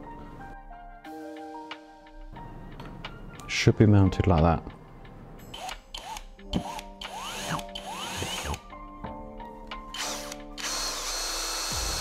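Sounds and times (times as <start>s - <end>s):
electric drill whining: 5.5s - 8.6s, 9.9s - 12.0s.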